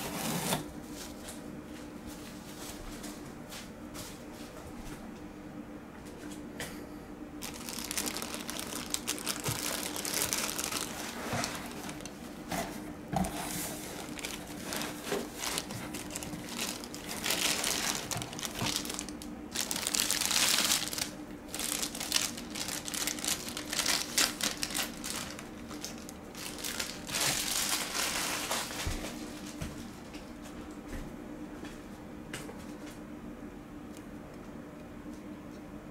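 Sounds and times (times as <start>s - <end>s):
plastic bag crinkling: 7.4s - 12.2s, 13.3s - 29.6s.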